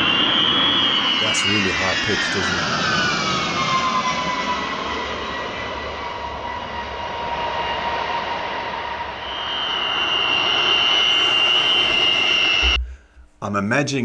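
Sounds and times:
higher whistle: 0:00.0 - 0:03.2, 0:07.4 - 0:13.0
jet engines whining: 0:00.0 - 0:12.8.

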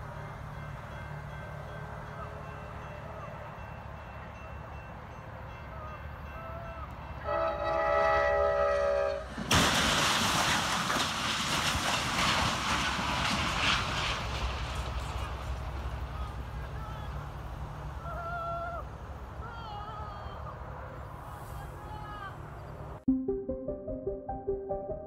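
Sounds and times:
passing train: 0:00.0 - 0:25.0
train horn: 0:06.4 - 0:09.3
loud crash of metal: 0:09.5 - 0:14.2.

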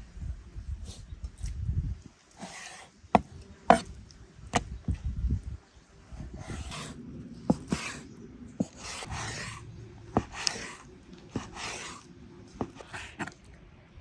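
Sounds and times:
knife blade scraping: 0:02.4 - 0:02.9.

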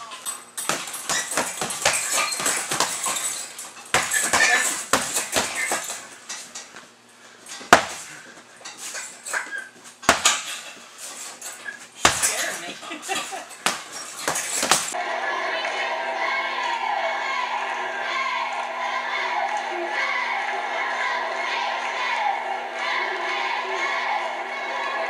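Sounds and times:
chains clinking: 0:00.1 - 0:06.0
gloves hitting punching bags: 0:00.6 - 0:03.2, 0:03.9 - 0:06.0, 0:07.7 - 0:08.2, 0:10.0 - 0:10.5, 0:12.0 - 0:12.5, 0:13.6 - 0:15.0.

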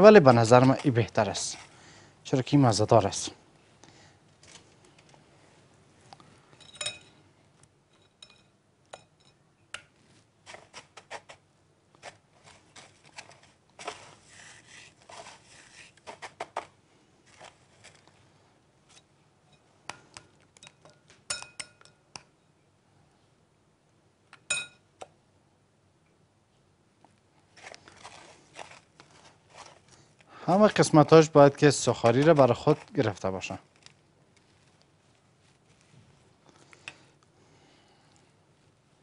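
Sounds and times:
utensils clinking on glass bowl: 0:06.6 - 0:07.2, 0:07.9 - 0:09.4, 0:20.6 - 0:22.0.

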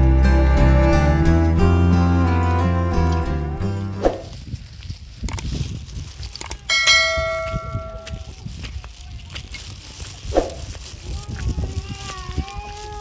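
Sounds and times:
metallic bell ring: 0:06.7 - 0:08.2.

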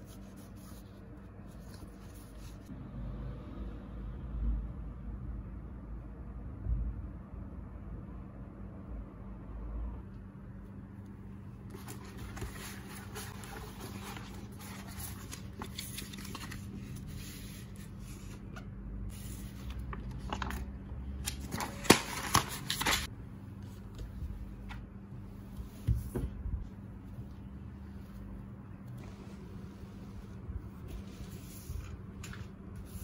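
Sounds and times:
faint steady hum: 0:04.4 - 0:33.0
paper rustling and crinkling: 0:11.6 - 0:24.8, 0:30.7 - 0:33.0.

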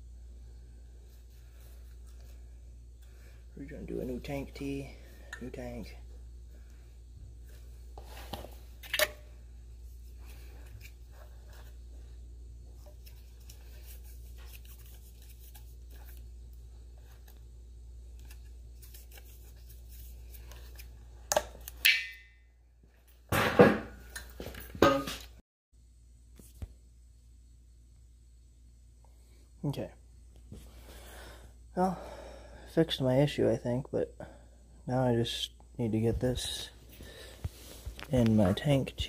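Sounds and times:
low background hum: 0:00.0 - 0:39.0
tape scratching and rustling: 0:12.8 - 0:16.3.

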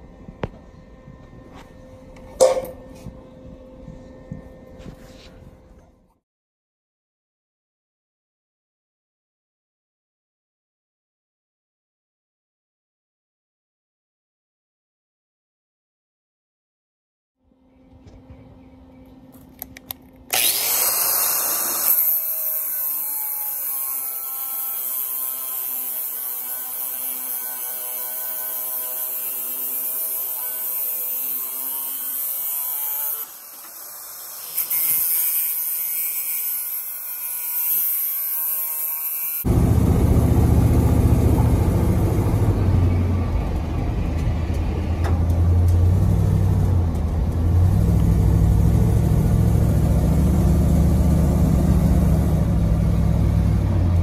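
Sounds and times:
power tool whirring: 0:19.5 - 0:42.5
truck engine running: 0:39.5 - 0:54.0.

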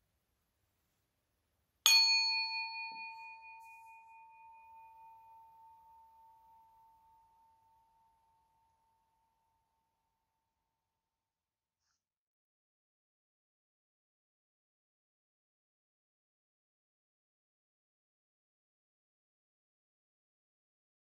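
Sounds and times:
meditation bell ringing: 0:01.9 - 0:09.4.

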